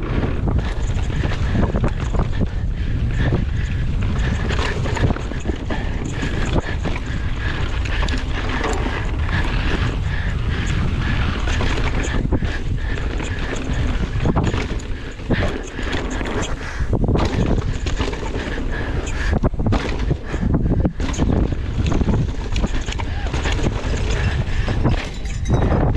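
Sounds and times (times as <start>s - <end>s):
bike knocking and rattling: 0.0s - 25.9s
wind buffeting microphone: 0.0s - 25.9s.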